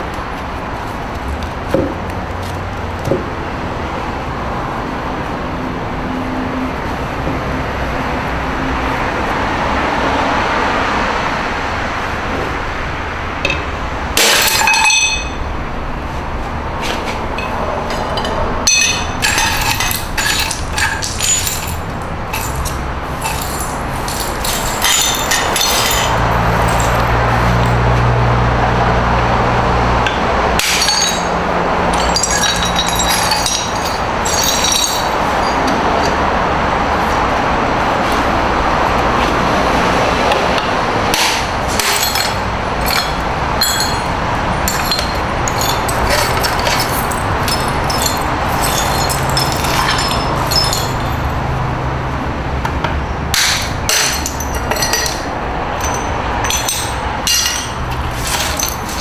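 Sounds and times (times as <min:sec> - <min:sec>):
steady background noise: 0:00.0 - 0:59.0
porcelain shards clinking: 0:13.5 - 0:15.4, 0:17.4 - 0:27.8, 0:30.6 - 0:36.2, 0:41.2 - 0:51.5, 0:53.3 - 0:59.0.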